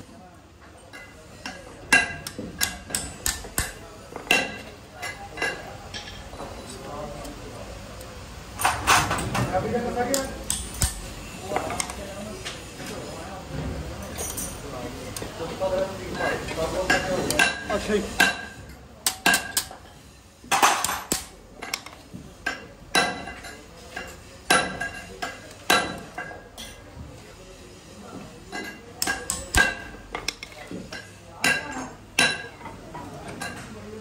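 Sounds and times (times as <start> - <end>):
hammer striking rivets on anvil: 2.0 - 3.8.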